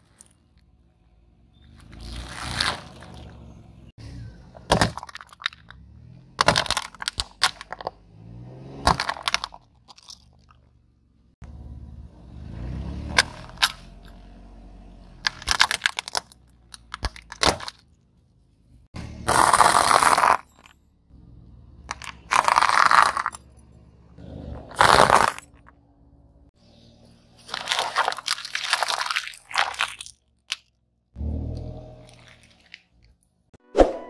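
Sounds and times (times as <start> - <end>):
car tyre rolling rumble: 0.1 - 29.0
plastic and packaging crunching: 1.8 - 3.4, 15.3 - 17.8, 19.3 - 20.6, 21.9 - 23.4, 24.7 - 25.7, 27.4 - 30.7, 32.0 - 33.2.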